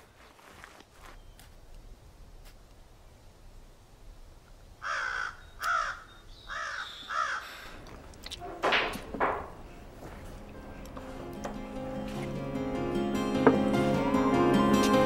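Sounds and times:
crow cawing: 0:04.8 - 0:07.8.

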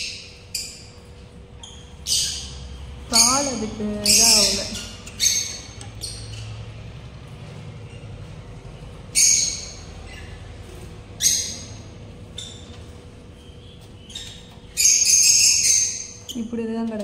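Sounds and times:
small parrots squawking: 0:00.0 - 0:06.8, 0:08.9 - 0:16.4.

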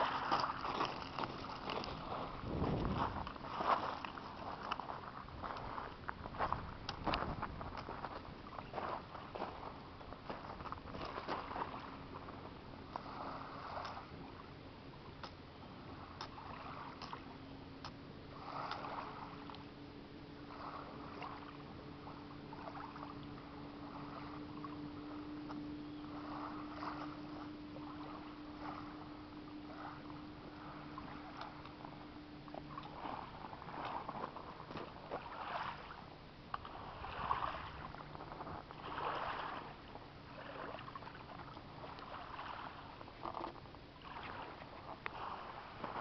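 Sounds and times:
low hum: 0:00.0 - 0:46.0
footsteps crunching on pebbles: 0:00.1 - 0:11.4.

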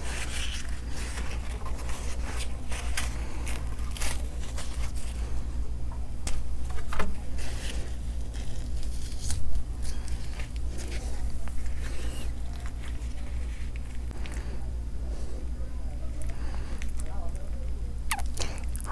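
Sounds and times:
flatbread rustling and crinkling: 0:00.0 - 0:05.6, 0:06.2 - 0:15.2
steady low hum: 0:00.0 - 0:18.9.

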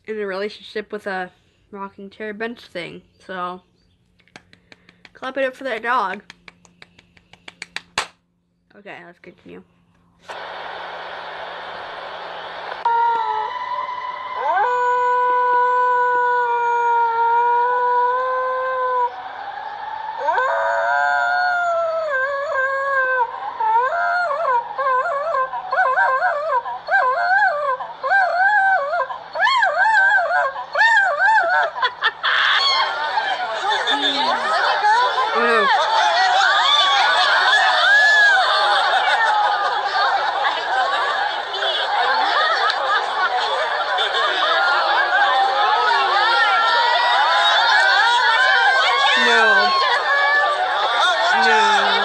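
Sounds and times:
dog howling: 0:14.4 - 0:19.3, 0:20.1 - 0:41.1, 0:44.2 - 0:52.0
people laughing and chattering: 0:22.7 - 0:52.0.

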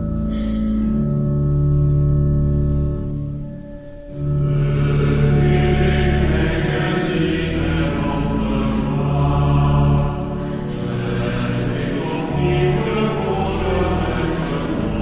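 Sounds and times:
pipe organ playing chords: 0:00.0 - 0:15.0
voices singing a hymn: 0:04.2 - 0:15.0.

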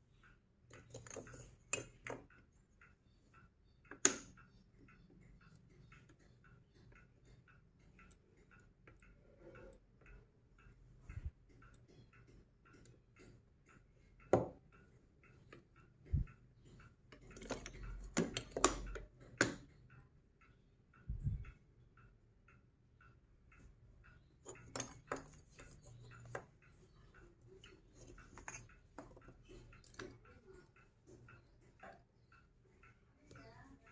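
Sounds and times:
faint steady ticking: 0:00.0 - 0:33.9
magnetic toy pieces clacking: 0:24.4 - 0:32.3.

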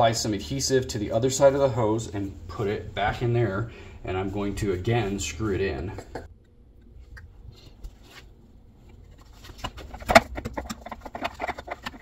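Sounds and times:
plastic clicks and scraping: 0:08.9 - 0:12.0.

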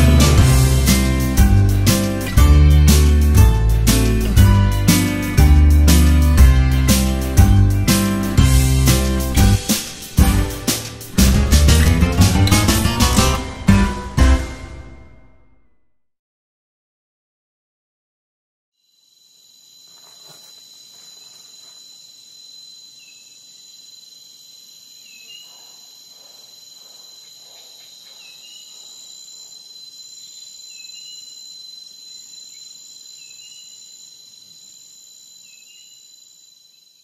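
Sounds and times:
insect chorus trilling: 0:18.8 - 0:37.0.

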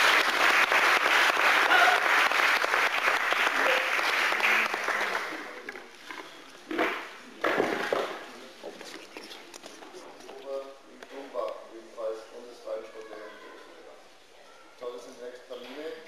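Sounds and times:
spectators applauding in a hall: 0:00.0 - 0:05.7.

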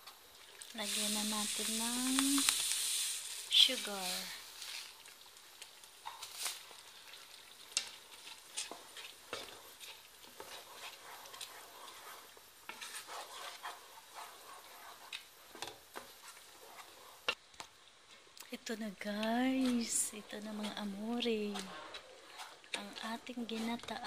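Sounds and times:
spatula scraping and knocking pan: 0:07.7 - 0:17.4.

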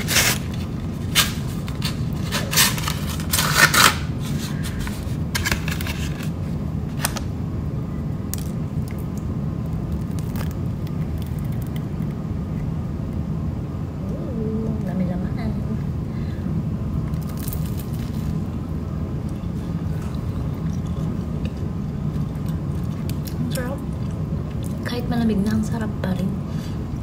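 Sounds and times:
paper wrapping crinkling and tearing: 0:00.0 - 0:07.2
steady low hum: 0:00.0 - 0:27.0.

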